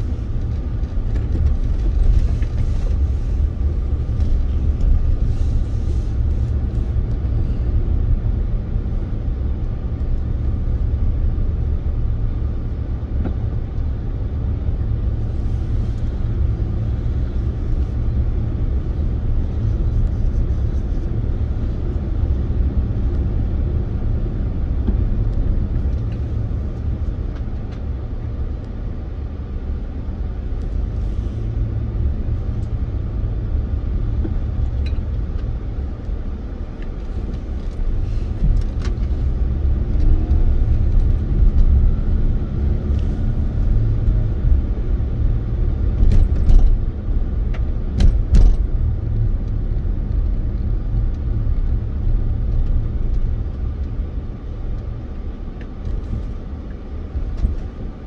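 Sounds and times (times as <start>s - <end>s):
steady low rumble: 0.0s - 58.0s.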